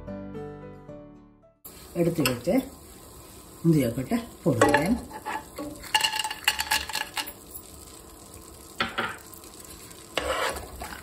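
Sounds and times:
butter sizzling in pan: 0:01.7 - 0:11.0
nuts clattering into pan: 0:05.6 - 0:07.6
wooden spatula stirring: 0:10.2 - 0:11.0.

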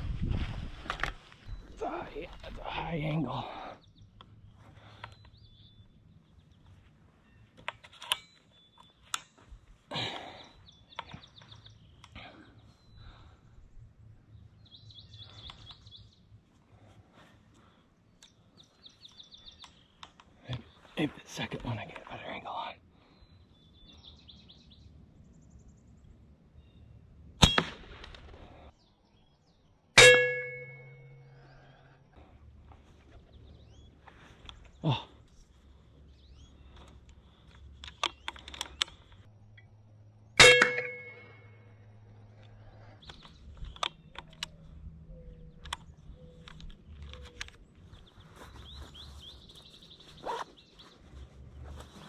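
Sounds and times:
rifle handling clicks: 0:07.6 - 0:09.4, 0:36.7 - 0:39.2, 0:45.6 - 0:47.6
air rifle firing: 0:27.4 - 0:28.4
metallic clang: 0:30.0 - 0:31.2, 0:40.4 - 0:41.6.

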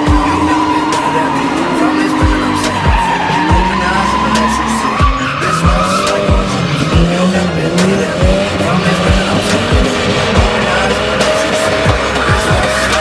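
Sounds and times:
music with kick-drum beat: 0:00.0 - 0:00.7, 0:05.0 - 0:13.0
car engines revving: 0:00.0 - 0:13.0
tyres squealing: 0:00.0 - 0:13.0.

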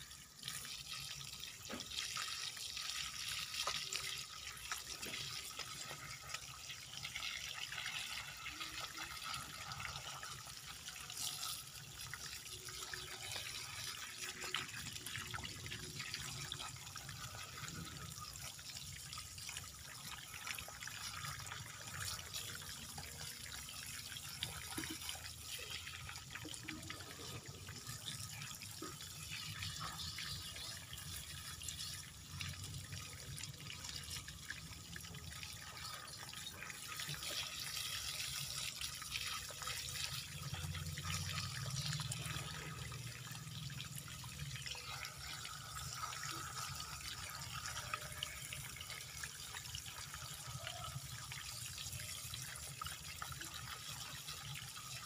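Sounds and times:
water running from a hose: 0:00.0 - 0:55.0.

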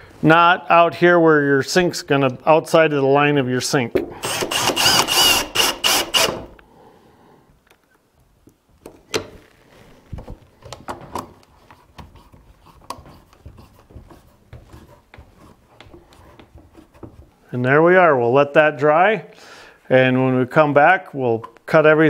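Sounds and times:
cordless drill driving screw: 0:04.2 - 0:06.6.

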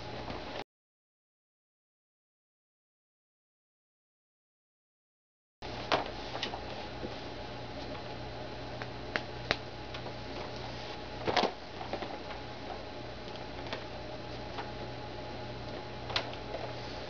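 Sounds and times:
steady low hum: 0:00.0 - 0:00.6, 0:05.6 - 0:17.0.

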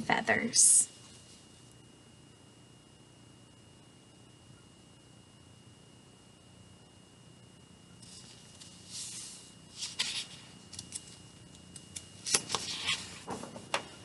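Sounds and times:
board book page turning: 0:08.0 - 0:11.2, 0:12.0 - 0:13.8.

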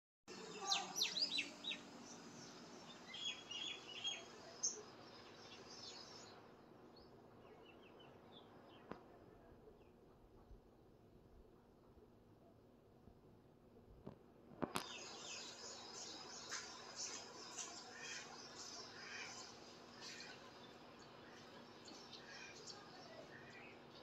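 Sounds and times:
small birds chirping: 0:00.3 - 0:10.9, 0:14.6 - 0:24.0.

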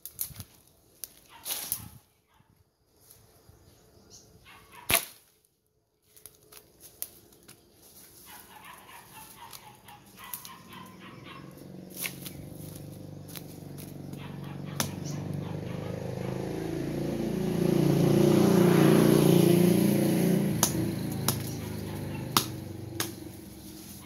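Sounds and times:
branches snapping and rustling: 0:00.0 - 0:02.0, 0:04.8 - 0:10.9, 0:11.9 - 0:15.4, 0:20.6 - 0:24.0
machete chopping brush: 0:01.0 - 0:02.0, 0:04.7 - 0:05.4, 0:11.9 - 0:15.4, 0:20.5 - 0:24.0
low engine hum: 0:10.2 - 0:24.0.

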